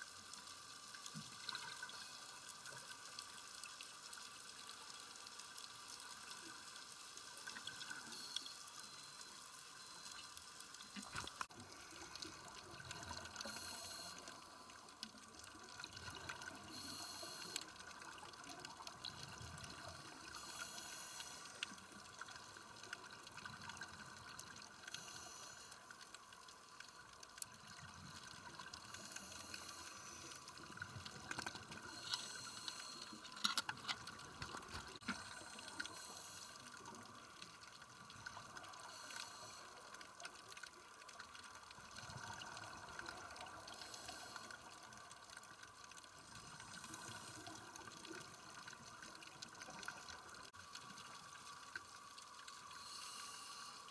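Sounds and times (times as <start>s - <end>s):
regulator bubbles underwater: 10.8s - 53.7s
steady hiss: 13.4s - 14.9s, 16.7s - 17.7s, 19.7s - 21.8s, 24.8s - 25.8s, 28.8s - 33.3s, 35.0s - 37.1s, 38.6s - 39.9s, 43.6s - 44.7s, 52.5s - 53.9s.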